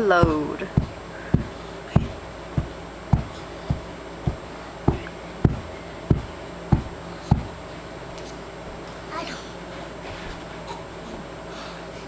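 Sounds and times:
bare feet thumping on carpet: 0.2s - 7.6s.

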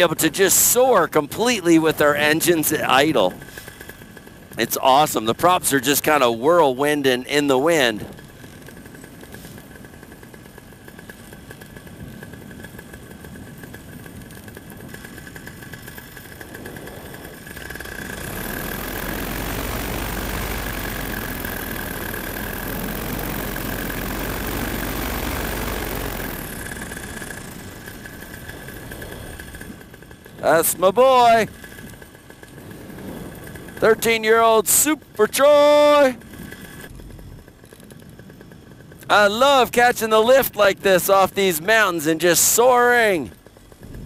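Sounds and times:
paramotor engine idling: 0.0s - 44.0s
rushing noise with deep rumble: 7.9s - 34.2s, 43.6s - 44.0s.

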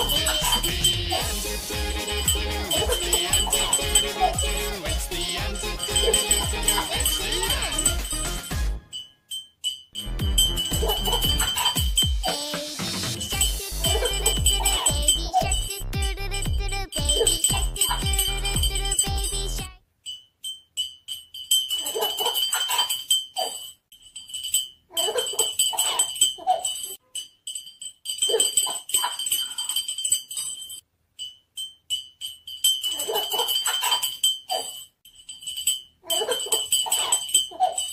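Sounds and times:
baby laughing: 0.0s - 8.4s, 10.6s - 12.8s, 13.4s - 15.9s, 21.8s - 23.7s, 24.9s - 26.9s, 32.9s - 34.8s, 36.0s - 37.9s
thin high jingling: 0.0s - 37.9s.

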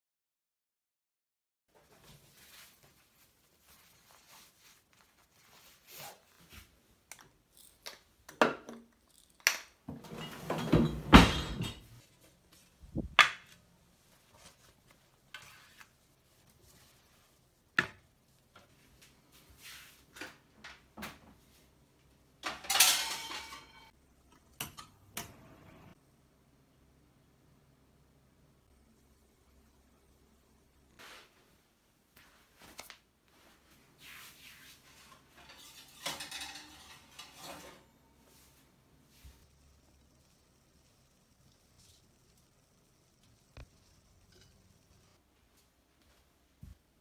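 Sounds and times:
cookware clattering: 9.9s - 12.0s, 22.4s - 23.9s, 35.4s - 37.9s
dishes and cookware clinking: 9.9s - 12.0s, 22.4s - 25.4s, 35.3s - 38.0s, 44.2s - 44.9s.

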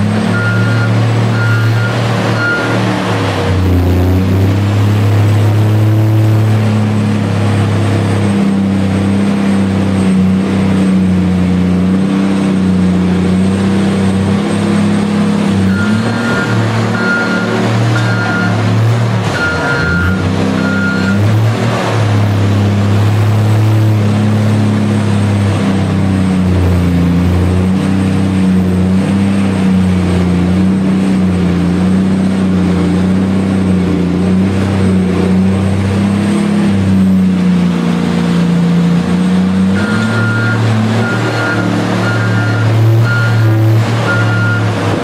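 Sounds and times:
diesel engine running: 0.0s - 45.0s
reversing alarm beeping: 0.3s - 2.8s, 15.6s - 21.3s, 39.7s - 44.7s.

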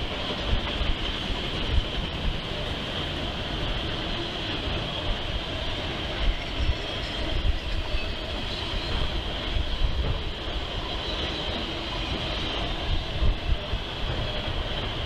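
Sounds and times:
train wheels rumbling on track: 0.0s - 15.0s.

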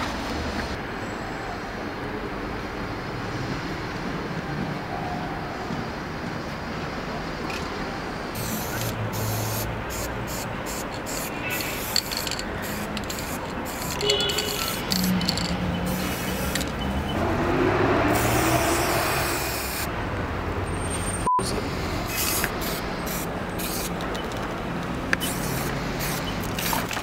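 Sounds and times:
street traffic: 0.0s - 27.0s
spray paint can hissing: 8.4s - 17.0s, 18.1s - 19.9s, 22.1s - 24.5s, 25.1s - 27.0s.

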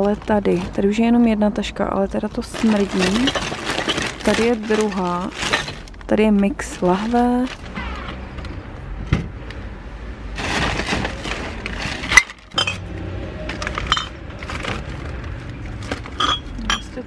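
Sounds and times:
plastic bags rustling: 0.0s - 8.2s, 10.3s - 17.0s
glass bottles clinking: 2.7s - 5.9s, 12.0s - 12.9s, 13.6s - 14.2s, 16.1s - 17.0s.

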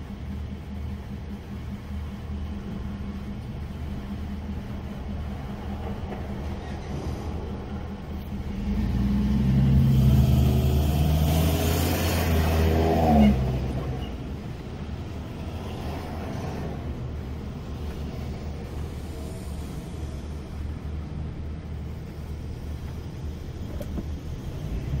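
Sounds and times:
low traffic rumble: 0.0s - 25.0s
truck engine passing: 6.9s - 19.9s.

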